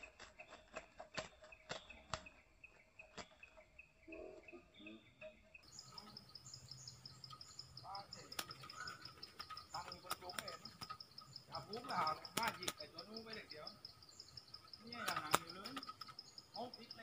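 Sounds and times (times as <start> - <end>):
soft bird calls: 0.0 - 17.0
insect chirping in pulses: 1.6 - 17.0
sharp clicks: 8.1 - 16.9.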